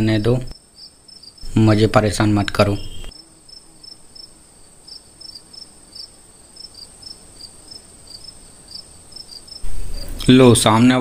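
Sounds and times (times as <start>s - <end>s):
crickets chirping: 0.0s - 11.0s
faint steady high tone: 2.6s - 3.1s.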